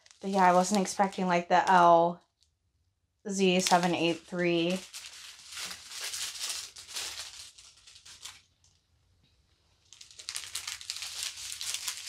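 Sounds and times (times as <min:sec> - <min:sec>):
plastic bags crinkling: 0:00.0 - 0:01.9, 0:03.5 - 0:08.8, 0:09.8 - 0:12.0.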